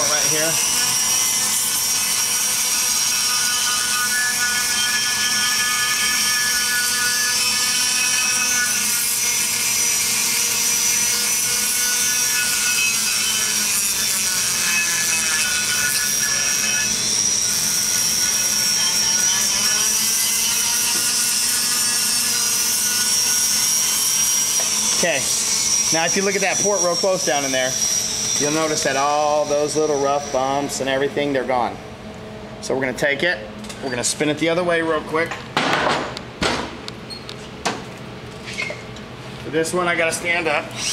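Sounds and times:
rotary grinder whining: 0.0s - 30.9s.

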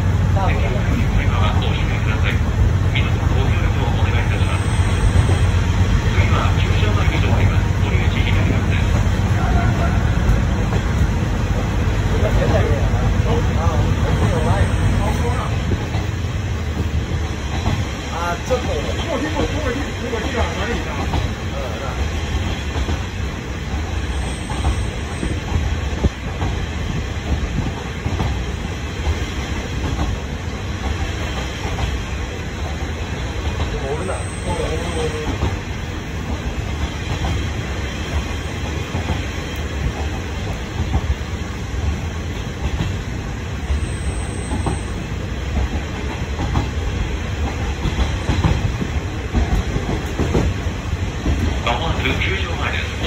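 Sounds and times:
diesel railcar engine rumble: 0.0s - 53.0s
wheels clicking over rail joints: 44.5s - 52.3s.

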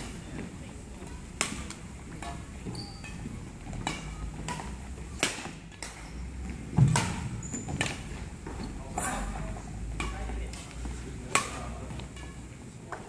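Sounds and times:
rackets striking shuttlecock: 1.3s - 8.2s, 9.8s - 12.5s
shoe squeaks on wooden court: 2.6s - 3.4s, 7.1s - 8.7s.

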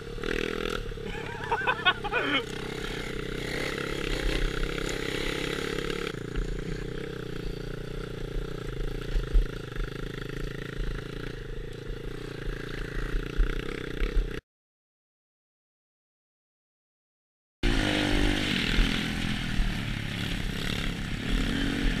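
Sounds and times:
dirt bike engine running: 0.0s - 14.4s, 17.6s - 22.0s
bike rattling and knocking: 2.4s - 14.4s.

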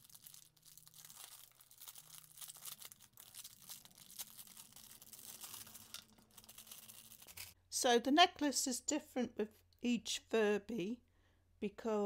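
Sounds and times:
plastic packaging crinkling: 0.0s - 7.6s.

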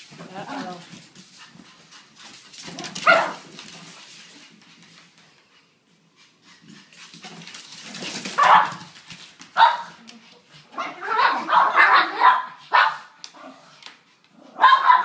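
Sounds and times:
dogs barking and yipping: 2.6s - 3.5s, 7.9s - 8.9s, 10.8s - 13.7s, 14.4s - 15.0s.

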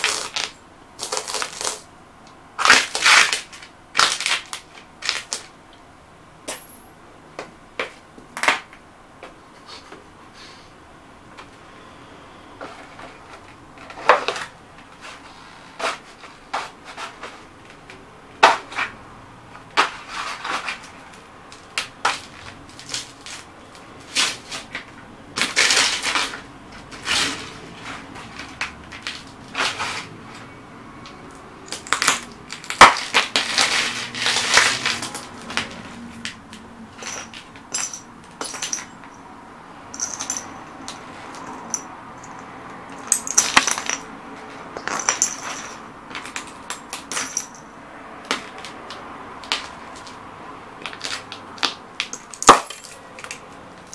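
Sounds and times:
cardboard boxes crumpling: 0.0s - 1.8s
boots crushing glass tubes: 31.6s - 35.3s, 37.0s - 39.2s, 40.0s - 47.7s, 50.8s - 53.9s.

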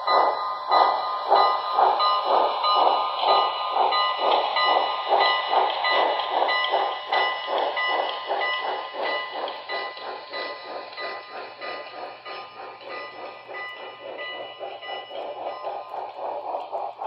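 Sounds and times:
model steam locomotive chuffing: 0.0s - 17.0s.

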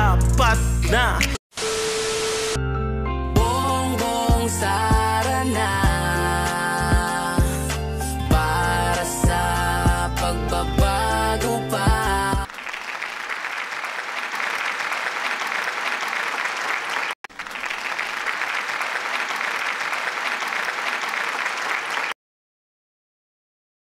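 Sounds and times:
applause: 12.4s - 22.2s.

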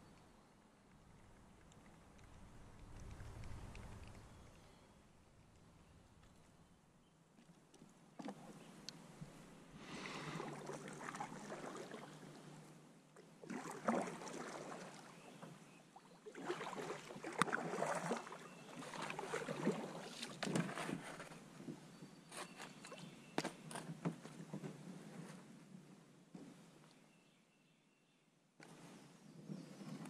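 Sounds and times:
paddle strokes splashing water: 7.4s - 23.7s.

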